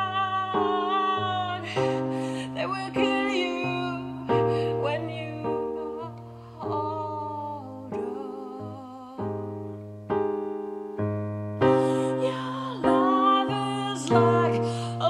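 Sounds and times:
keyboard playing chords: 9.2s - 14.8s.

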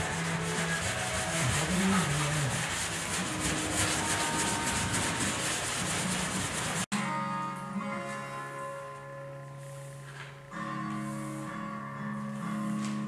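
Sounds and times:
sandpaper rasping on metal panel: 0.0s - 6.9s.

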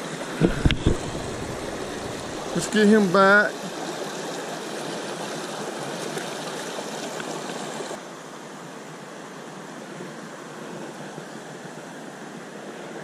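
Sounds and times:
water rushing over rocks: 0.0s - 8.2s.

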